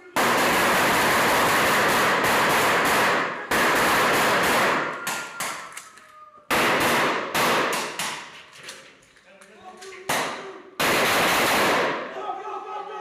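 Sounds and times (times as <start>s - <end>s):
rapid rifle fire: 0.1s - 5.0s, 6.5s - 8.3s, 10.1s - 12.1s
single gunshots: 0.2s - 5.0s, 6.5s - 8.3s, 10.1s - 12.1s.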